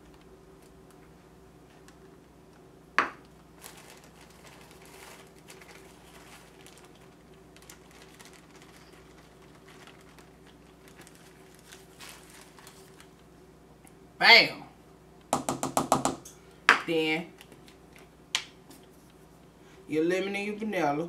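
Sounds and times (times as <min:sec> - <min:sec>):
plastic bag crinkling: 0:03.1 - 0:13.4.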